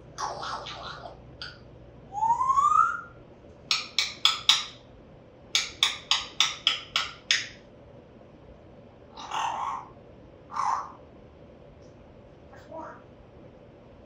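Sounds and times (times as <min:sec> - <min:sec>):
parrot whistle: 0:02.1 - 0:03.2
parrot clicking: 0:03.7 - 0:04.8, 0:05.5 - 0:07.6.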